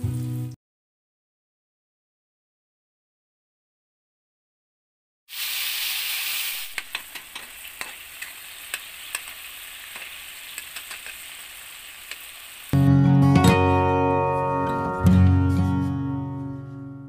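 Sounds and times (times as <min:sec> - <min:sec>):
tomatoes sizzling in oil: 0:00.0 - 0:00.6, 0:05.3 - 0:12.9
metal spatula scraping a pan: 0:06.7 - 0:11.4
acoustic guitar music: 0:12.8 - 0:17.0.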